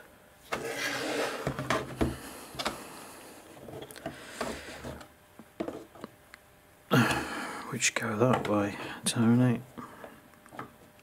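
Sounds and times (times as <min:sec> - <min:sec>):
rubbing and scraping: 0:00.5 - 0:01.9.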